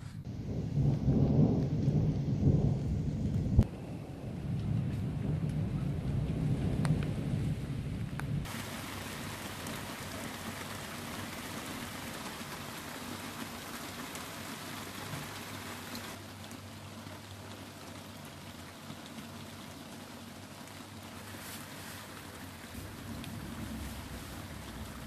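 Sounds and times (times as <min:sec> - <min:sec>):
low thunder rumble: 0:00.2 - 0:08.7, 0:22.7 - 0:25.0
steady rain falling: 0:00.2 - 0:25.0.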